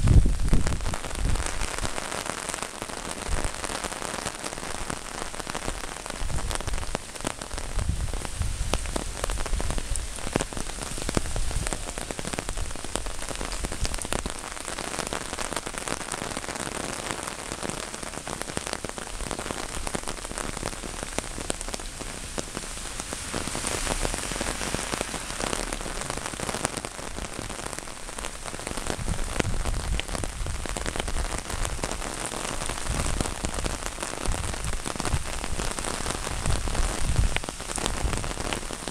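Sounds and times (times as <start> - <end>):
heavy rain on an umbrella: 0.0 - 38.9.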